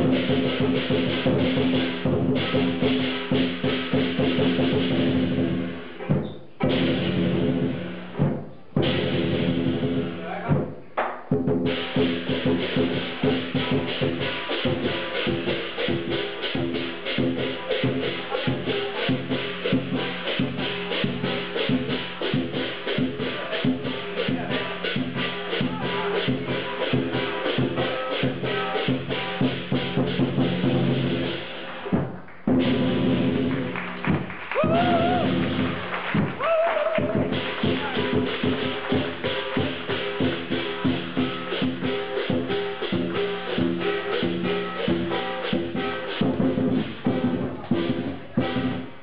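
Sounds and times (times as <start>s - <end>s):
big drum beating: 0.0s - 49.0s
cymbal clashes: 11.6s - 32.0s, 37.3s - 49.0s.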